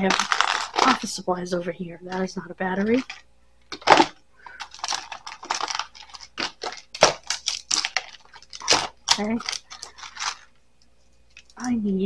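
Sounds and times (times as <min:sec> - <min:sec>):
batteries clicking and clattering: 0:00.0 - 0:01.1, 0:02.1 - 0:10.6, 0:11.3 - 0:11.7.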